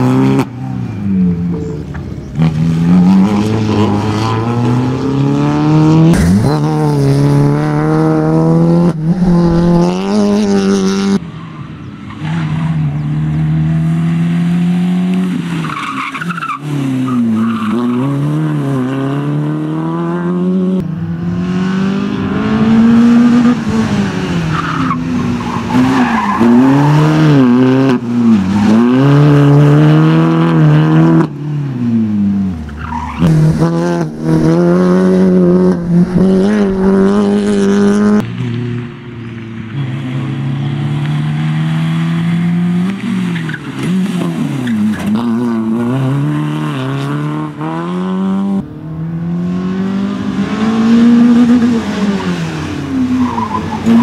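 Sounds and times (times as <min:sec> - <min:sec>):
rally car engine revving hard: 0:02.4 - 0:11.2, 0:17.7 - 0:31.4, 0:32.9 - 0:38.2, 0:40.7 - 0:54.0.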